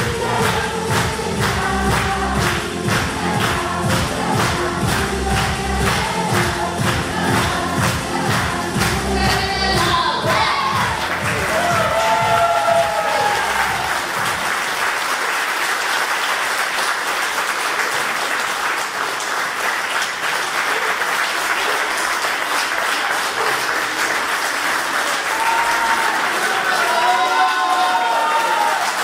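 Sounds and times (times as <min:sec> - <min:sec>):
audience applauding: 0:10.2 - 0:29.0.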